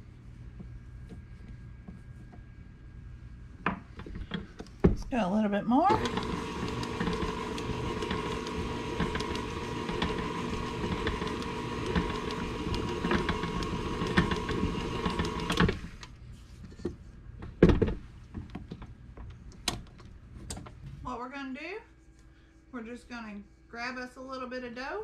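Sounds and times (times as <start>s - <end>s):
electric mixer whining: 5.9s - 16.1s.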